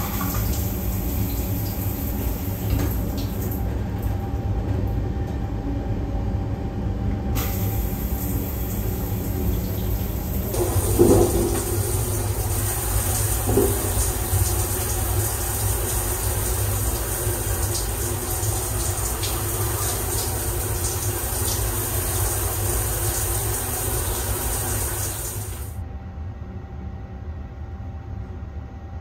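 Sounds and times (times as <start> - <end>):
train rumble: 1.6 - 25.7
shower spraying on steel wall: 7.4 - 25.8.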